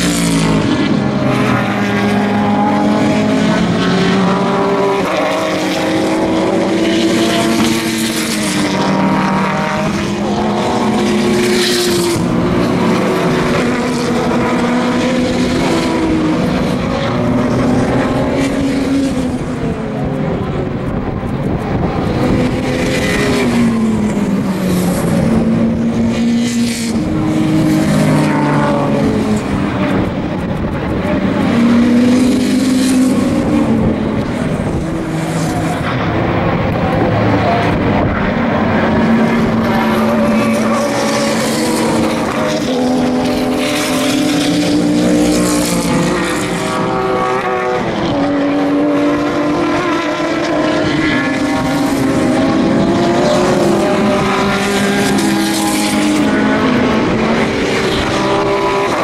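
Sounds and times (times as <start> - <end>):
race car engines at racing speed: 0.0 - 59.0.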